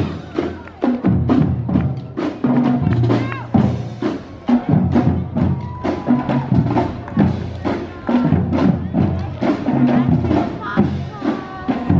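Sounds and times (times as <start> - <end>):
steady percussion beat: 0.0 - 11.9.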